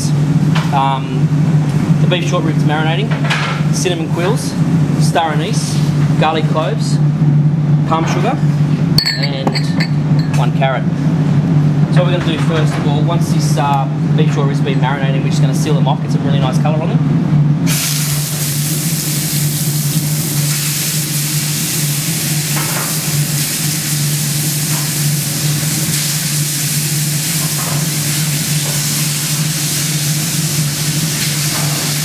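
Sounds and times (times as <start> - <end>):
steady low hum: 0.0 - 23.4
meat sizzling in a frying pan: 17.7 - 32.0.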